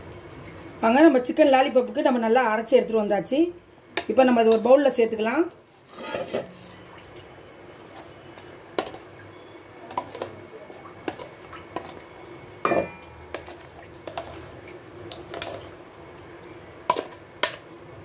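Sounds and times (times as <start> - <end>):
utensil scraping metal jar and bowl: 5.8 - 6.8.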